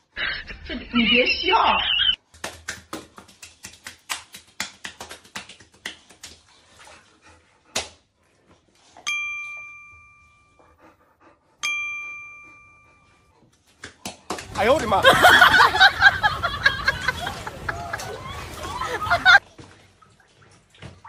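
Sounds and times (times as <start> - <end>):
hands patting wet dog: 2.2 - 8.9, 13.5 - 21.0
bell dinging: 9.0 - 10.5, 11.6 - 13.0.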